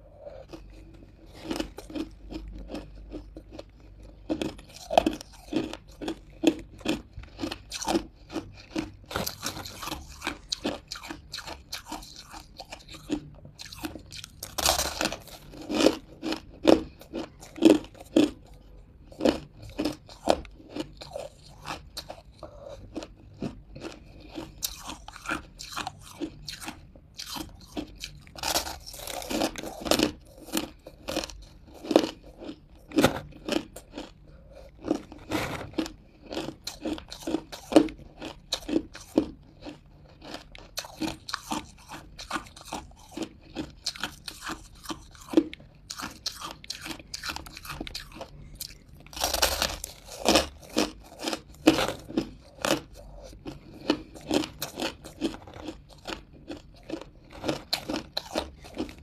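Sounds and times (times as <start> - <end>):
person crunching ice: 0.2 - 18.5, 19.2 - 59.0.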